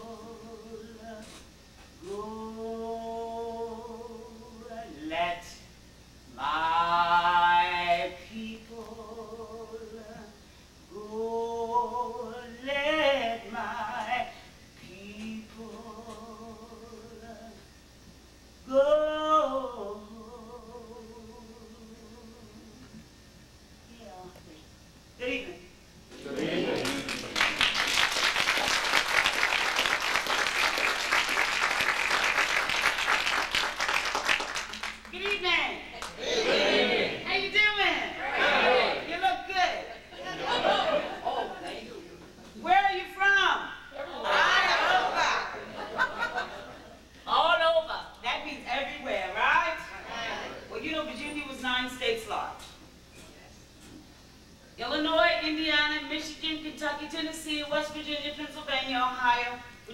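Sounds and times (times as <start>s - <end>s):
woman singing unaccompanied: 0.0s - 1.4s, 2.0s - 5.7s, 6.3s - 17.7s, 18.6s - 22.9s
audience applauding: 26.3s - 35.4s.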